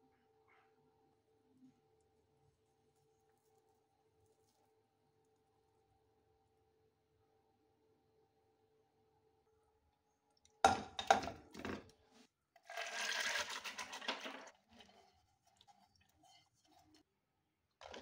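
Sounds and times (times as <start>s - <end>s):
lentils pouring into metal pot: 12.6s - 15.0s.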